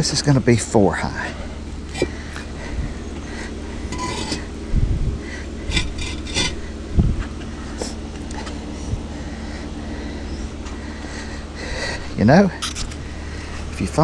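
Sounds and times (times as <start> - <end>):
concrete blocks knocking and scraping: 1.9 - 2.5, 3.9 - 4.6, 5.6 - 6.7.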